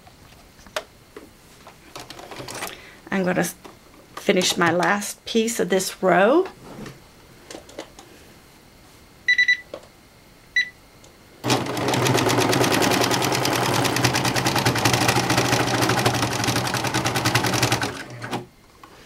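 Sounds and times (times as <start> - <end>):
serger sewing machine running: 11.4 - 18.5.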